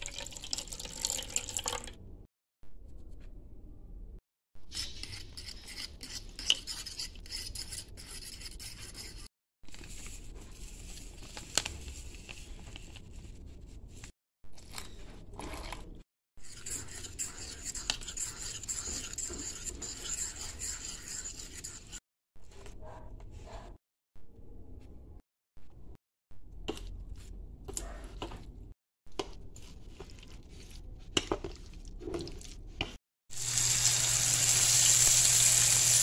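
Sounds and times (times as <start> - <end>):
fork beating batter in a bowl: 16.4 - 22.0, 29.1 - 33.0.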